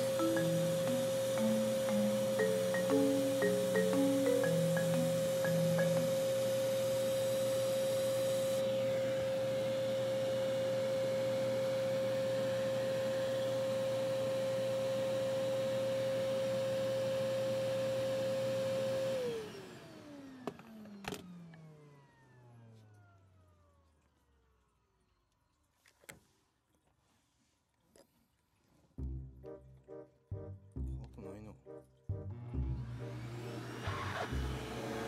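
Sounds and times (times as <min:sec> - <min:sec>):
vacuum cleaner running: 0:00.0 - 0:23.8, 0:32.3 - 0:35.0.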